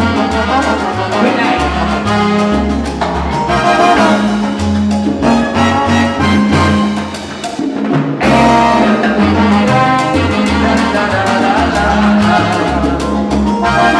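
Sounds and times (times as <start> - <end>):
live salsa band playing: 0.0 - 13.9.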